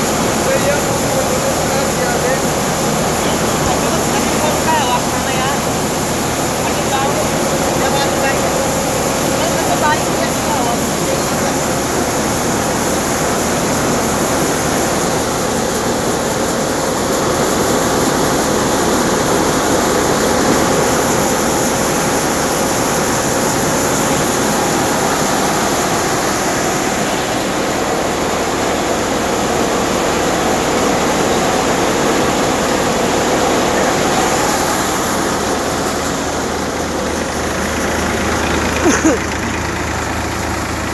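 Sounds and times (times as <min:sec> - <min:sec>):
grain rushing through machine: 0:00.0 - 0:40.9
thresher machine running: 0:00.0 - 0:40.9.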